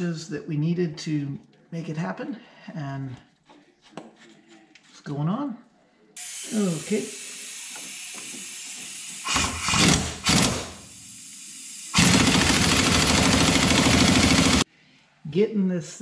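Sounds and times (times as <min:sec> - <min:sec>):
air hissing: 0:06.2 - 0:14.7
impact wrench hammering: 0:07.7 - 0:10.8, 0:12.0 - 0:14.6.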